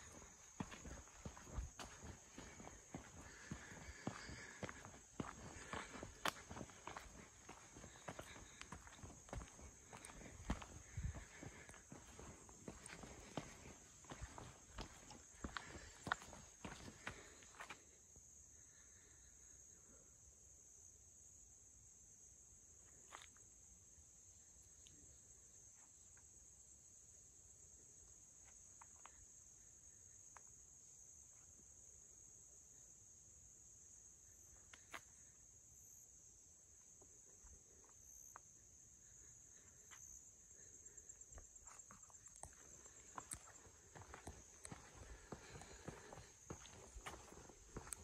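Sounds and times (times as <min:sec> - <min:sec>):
footsteps on forest trail: 0:00.0 - 0:18.0, 0:37.0 - 0:48.0
insects trilling: 0:00.0 - 0:48.0.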